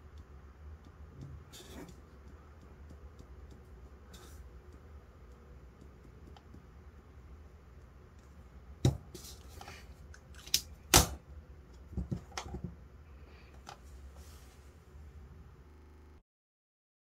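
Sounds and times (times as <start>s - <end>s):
faint low hum: 0.0s - 16.2s
pen knocking on a mat: 8.8s - 9.2s.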